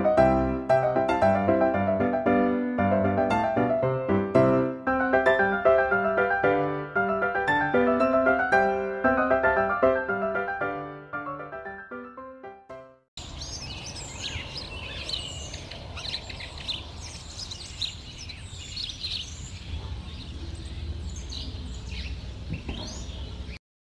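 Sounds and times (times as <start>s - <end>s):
small birds chirping: 13.2s - 23.6s.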